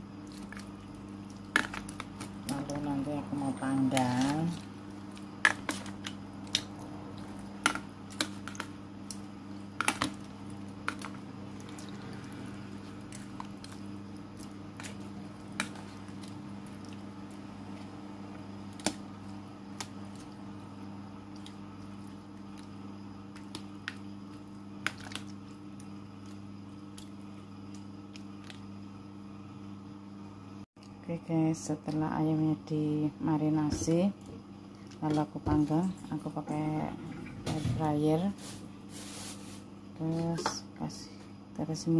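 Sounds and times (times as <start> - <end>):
steady low hum: 0.0 - 41.9
wet squishing of chicken in marinade: 0.1 - 18.0, 18.6 - 28.8.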